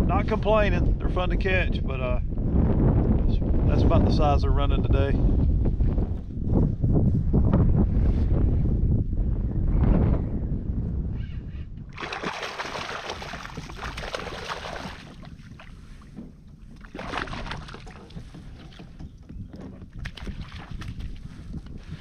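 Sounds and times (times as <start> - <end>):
wind rumble on microphone: 0.0 - 22.0
fish splashing in water: 12.0 - 15.7, 16.8 - 18.8.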